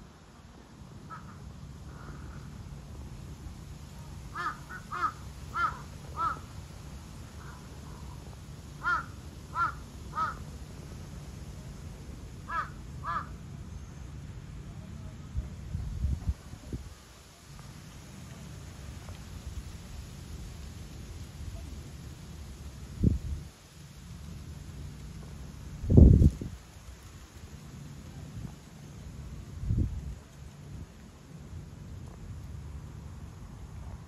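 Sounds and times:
crow cawing: 1.1 - 2.5, 4.3 - 6.5, 8.8 - 10.4, 12.5 - 13.4.

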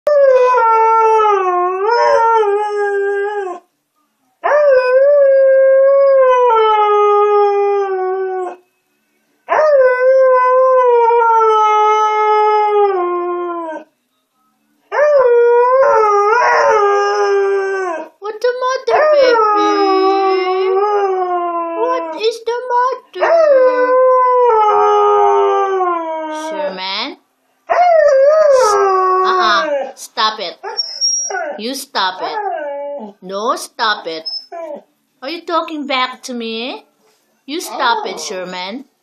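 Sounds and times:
dog howling: 27.7 - 30.0.

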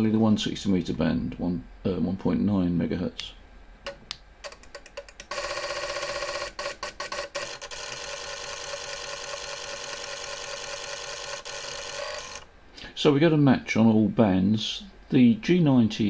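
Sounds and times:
tuner relays clicking: 3.9 - 5.4.

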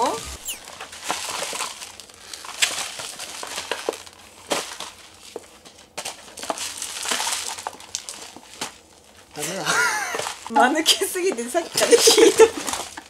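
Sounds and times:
sharp packaging crackles: 0.1 - 9.3
packaging crinkling and rustling: 1.0 - 9.3, 10.2 - 10.5, 11.7 - 13.0.

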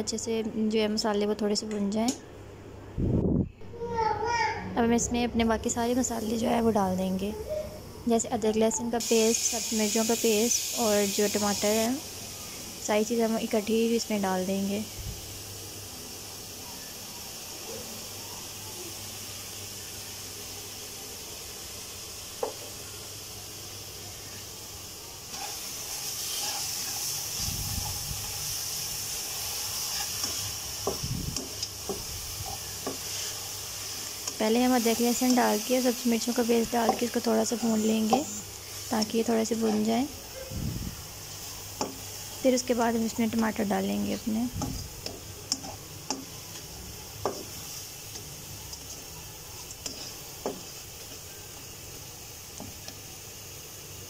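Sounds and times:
paste sizzling in a pan: 9.0 - 17.6, 18.5 - 54.0
spatula scraping and tapping pan: 29.8 - 33.4, 36.8 - 38.4, 39.0 - 39.9, 41.8 - 42.1, 44.6 - 51.2.

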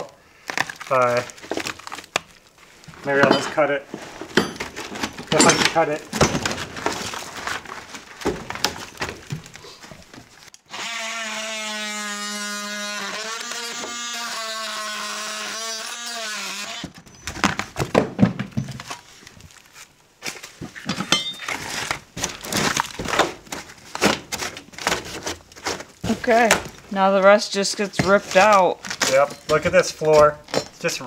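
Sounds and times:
rotted wood knocks and crunches: 0.4 - 10.6, 17.0 - 26.9
oscillating multi-tool cutting: 10.7 - 16.8.

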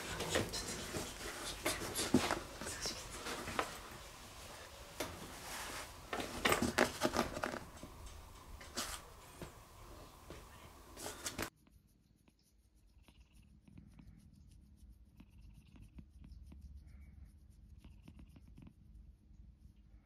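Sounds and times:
finger rubbing on fur: 0.0 - 7.6, 10.0 - 18.8
noisy rustle: 0.0 - 11.5
cat purring: 12.9 - 20.0.

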